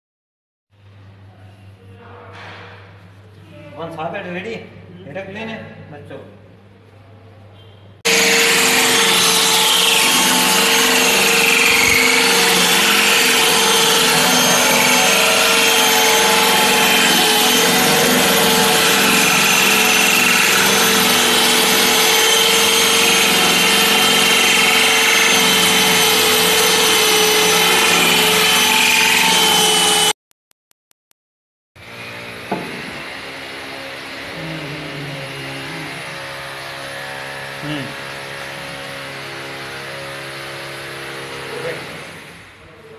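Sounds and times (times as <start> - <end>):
core drill grinding into stone: 8.1 - 30.2, 31.9 - 42.4
drill motor hum: 8.1 - 30.2, 31.8 - 42.4.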